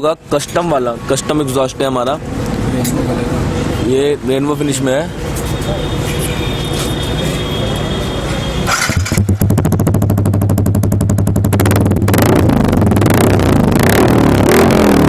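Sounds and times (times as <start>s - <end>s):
motorcycle engine idling: 8.7s - 13.7s.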